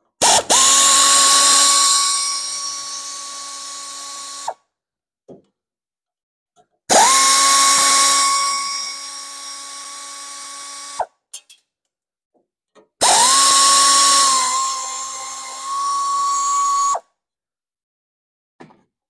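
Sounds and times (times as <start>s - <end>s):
power tool motor whine: 0.2s - 4.6s, 6.9s - 11.1s, 13.0s - 17.0s.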